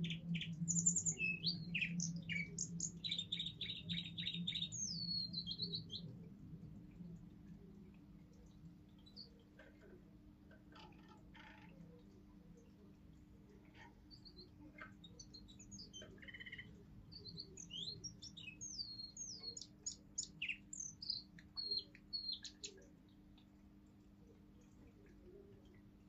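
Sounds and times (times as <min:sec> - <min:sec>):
canary singing: 0:00.0 - 0:06.2, 0:13.8 - 0:22.9.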